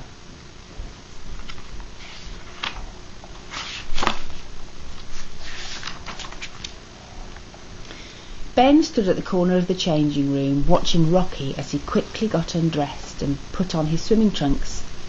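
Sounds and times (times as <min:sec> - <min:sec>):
book pages rustling: 0:01.3 - 0:06.8.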